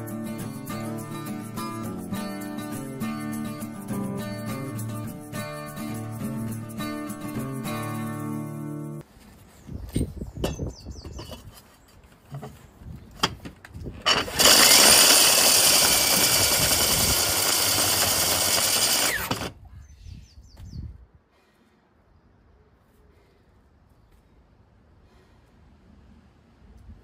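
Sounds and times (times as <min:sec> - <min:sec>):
core drill boring into stone: 0:14.1 - 0:19.5.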